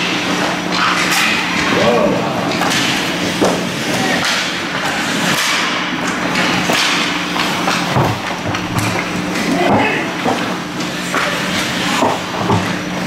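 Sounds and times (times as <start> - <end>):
steady low hum: 0.0 - 13.0
hockey sticks and puck knocking: 2.5 - 12.8.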